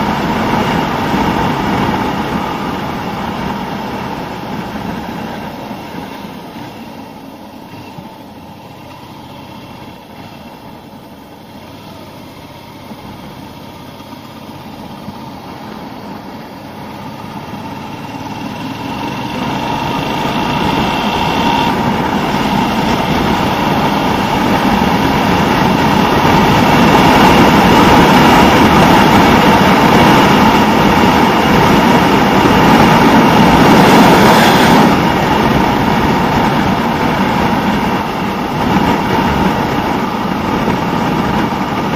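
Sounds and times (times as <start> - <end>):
motorcycle engine running: 0.0 - 41.9
wind noise on microphone: 19.4 - 41.9.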